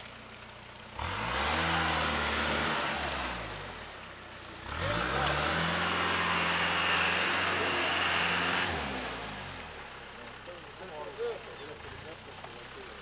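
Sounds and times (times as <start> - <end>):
engine revving hard: 1.0 - 4.0, 4.6 - 9.9.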